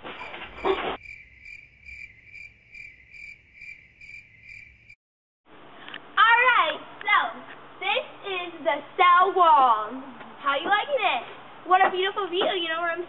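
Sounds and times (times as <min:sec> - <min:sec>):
cricket chirping: 0:00.0 - 0:05.0.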